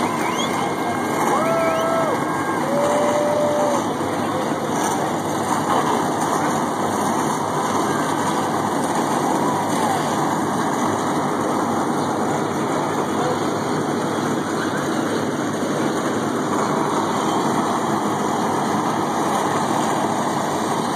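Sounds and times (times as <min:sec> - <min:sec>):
race car engines rumbling: 0:00.0 - 0:20.9.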